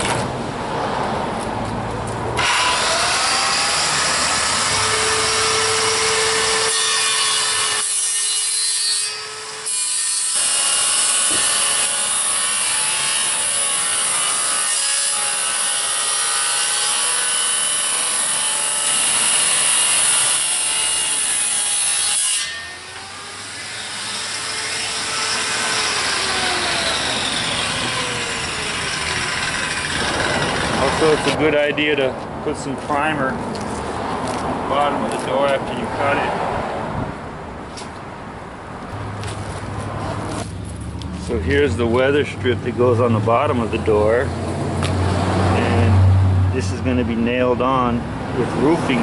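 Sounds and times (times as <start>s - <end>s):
power saw cutting wood: 2.4s - 31.6s.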